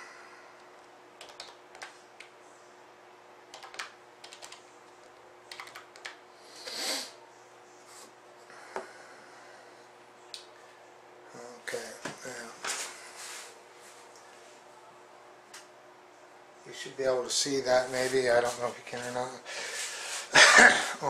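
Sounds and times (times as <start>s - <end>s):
keyboard typing: 0.8s - 2.3s, 3.5s - 4.6s, 5.5s - 6.2s.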